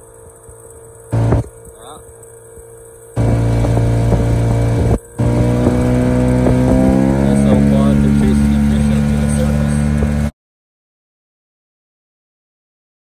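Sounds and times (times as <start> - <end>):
outboard motor running: 0.0 - 10.3.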